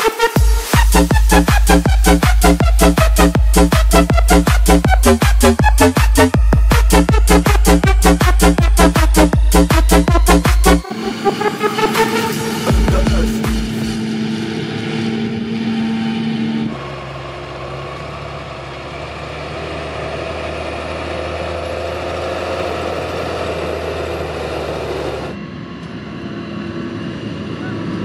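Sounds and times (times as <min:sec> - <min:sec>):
music ending on held chord: 0:00.0 - 0:15.8
tractor engine running: 0:00.0 - 0:28.0.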